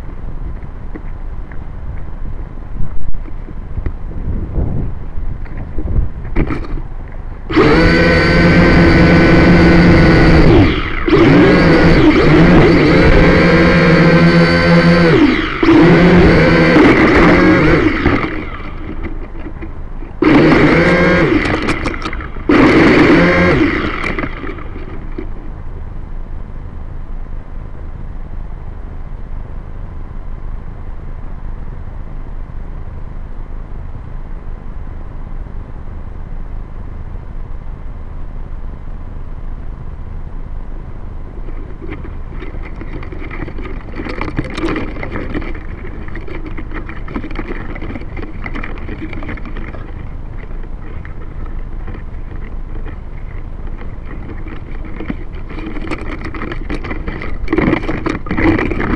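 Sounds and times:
quadcopter motors buzzing: 0:07.5 - 0:25.4.

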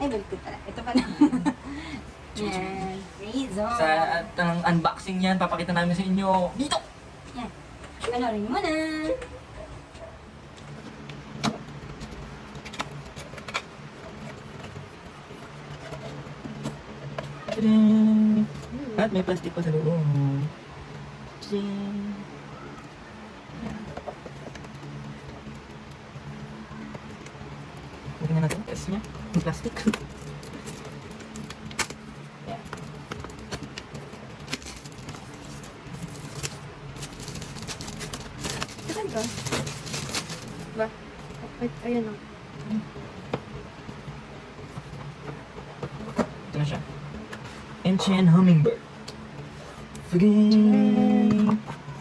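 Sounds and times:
plastic shrink-wrap crinkling: 0:28.4 - 0:40.8.

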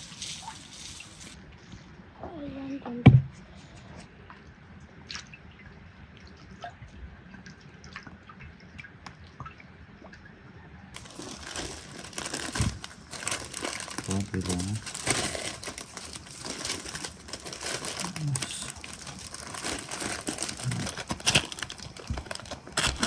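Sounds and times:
parchment paper crinkling: 0:00.0 - 0:01.4, 0:11.0 - 0:23.0
soft thump: 0:03.0 - 0:03.4.

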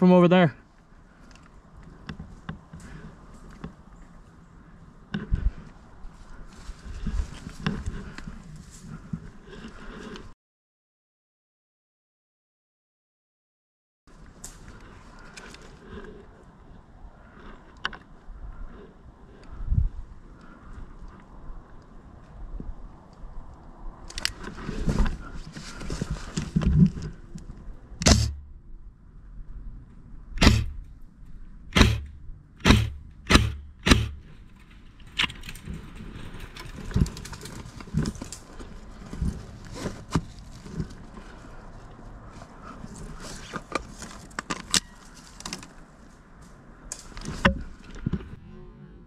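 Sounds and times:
rustling movement: 0:24.3 - 0:27.3, 0:31.8 - 0:48.2
loud sharp cracks: 0:28.0 - 0:28.4, 0:30.4 - 0:30.9, 0:31.7 - 0:34.3.

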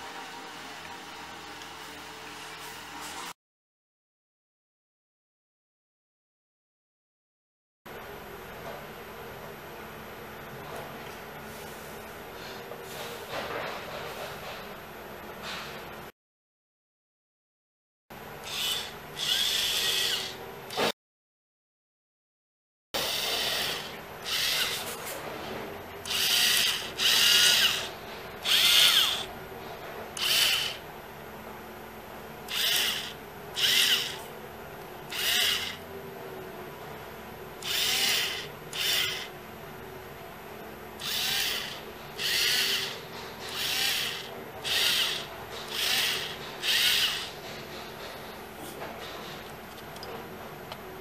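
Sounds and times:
small electric motor whining: 0:18.4 - 0:20.8, 0:23.0 - 0:25.0, 0:26.0 - 0:29.3, 0:30.2 - 0:30.8, 0:32.5 - 0:34.3, 0:35.1 - 0:35.8, 0:37.6 - 0:39.3, 0:41.0 - 0:47.4.

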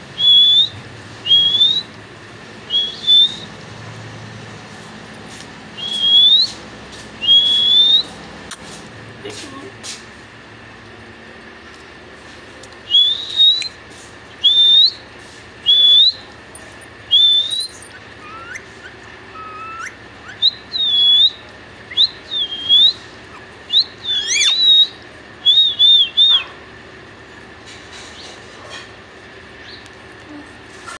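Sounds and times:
parakeet whistling: 0:00.2 - 0:01.9, 0:02.7 - 0:03.5, 0:05.8 - 0:06.6, 0:07.2 - 0:08.2, 0:12.9 - 0:13.7, 0:14.4 - 0:15.0, 0:15.6 - 0:16.3, 0:17.1 - 0:26.5.

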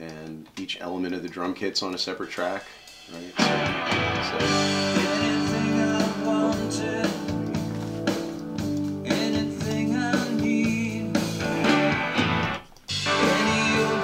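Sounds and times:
drums: 0:00.0 - 0:14.0
guitar: 0:03.1 - 0:14.0
person singing: 0:03.3 - 0:07.7, 0:09.0 - 0:11.5, 0:13.0 - 0:14.0.

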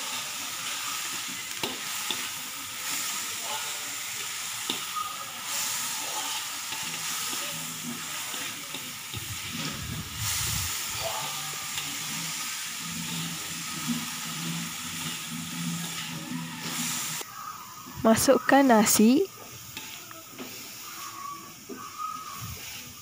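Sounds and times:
metal spatula stir-frying: 0:00.0 - 0:23.0
vegetables sizzling in oil: 0:00.0 - 0:23.0.

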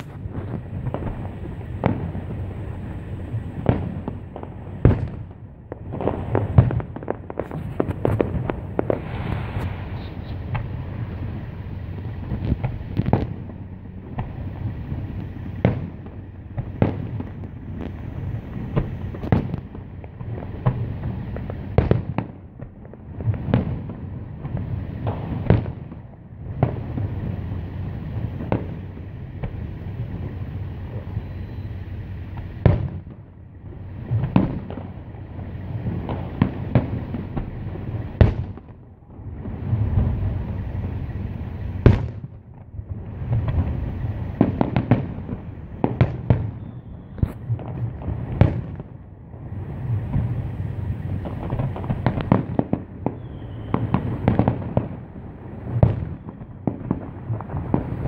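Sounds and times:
fireworks shells bursting: 0:00.0 - 0:22.4, 0:49.6 - 0:58.0
steady low rumble: 0:00.0 - 0:58.0.

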